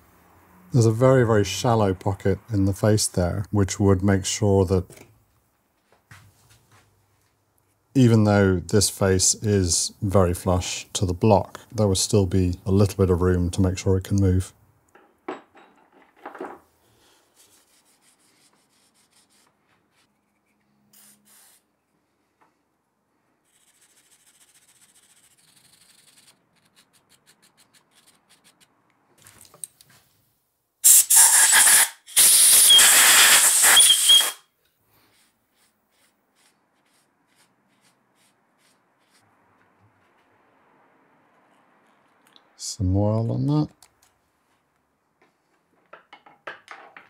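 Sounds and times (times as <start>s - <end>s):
spray can hissing: 21.0s - 21.6s, 30.8s - 34.4s.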